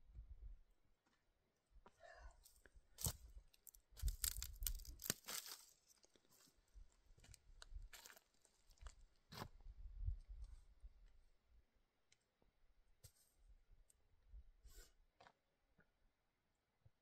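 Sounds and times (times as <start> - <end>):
footsteps crunching over dry reeds: 3.0 - 6.6, 7.2 - 9.4.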